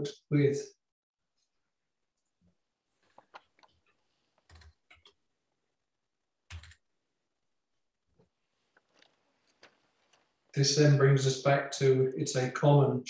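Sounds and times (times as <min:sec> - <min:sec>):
computer keyboard keystrokes: 0:04.4 - 0:05.2, 0:06.5 - 0:06.8.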